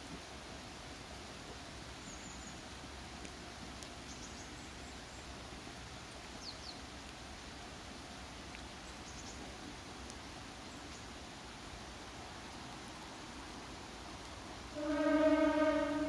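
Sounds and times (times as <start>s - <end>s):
low background noise: 0.0s - 16.0s
small birds chirping: 1.9s - 7.8s, 8.5s - 11.9s.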